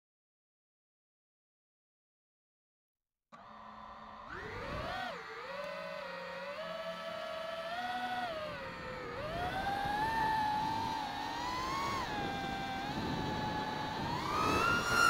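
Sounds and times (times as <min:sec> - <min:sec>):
drone motors and propellers whining: 0:03.4 - 0:15.0.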